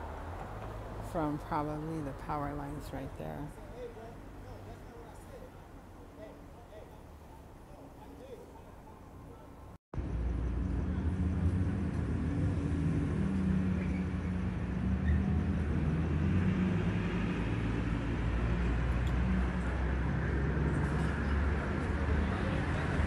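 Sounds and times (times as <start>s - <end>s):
road noise: 0.0s - 23.0s
vehicle engine humming: 9.1s - 23.0s.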